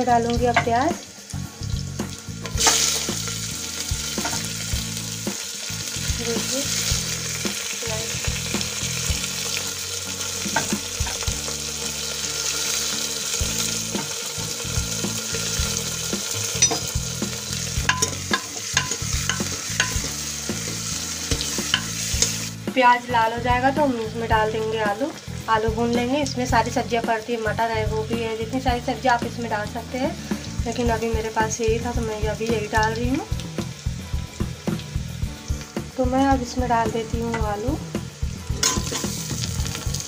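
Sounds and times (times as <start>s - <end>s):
onions sizzling in hot oil: 0.0s - 40.0s
metal spoon scraping pot: 17.8s - 20.1s.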